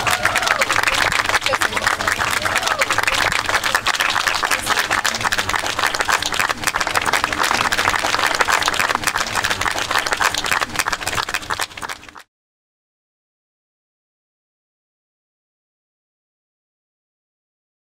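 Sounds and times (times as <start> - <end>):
crowd applauding: 0.0 - 12.3.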